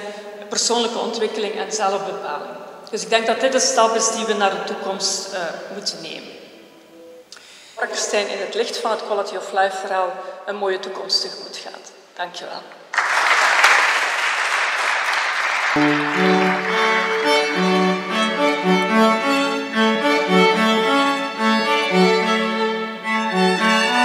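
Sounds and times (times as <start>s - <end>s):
applause: 12.9s - 18.5s
string quartet playing: 15.7s - 24.0s.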